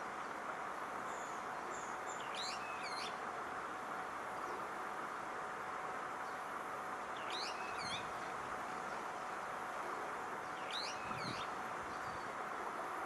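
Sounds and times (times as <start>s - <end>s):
background hiss: 0.0s - 13.0s
bird calling: 7.2s - 8.1s, 10.6s - 12.3s.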